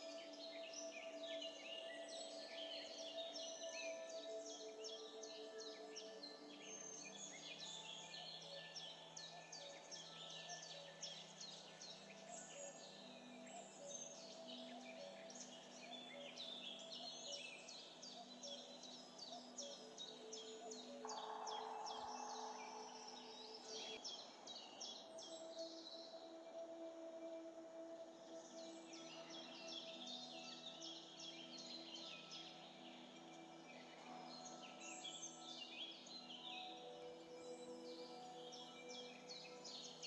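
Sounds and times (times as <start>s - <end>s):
soft sustained background tones: 0.0s - 40.0s.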